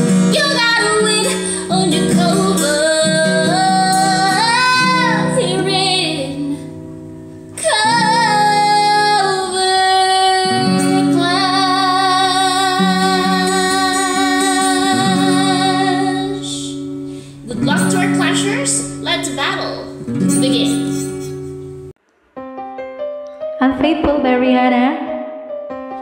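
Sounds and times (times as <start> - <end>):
guitar accompaniment: 0.0 - 26.0
woman singing a ballad: 0.3 - 6.7, 7.6 - 18.2.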